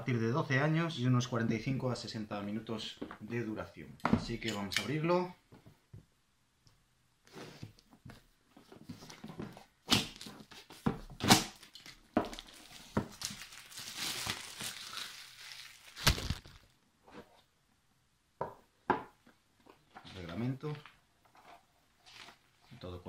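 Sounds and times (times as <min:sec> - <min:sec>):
plastic wrap tearing and crinkling: 0:11.2 - 0:16.8.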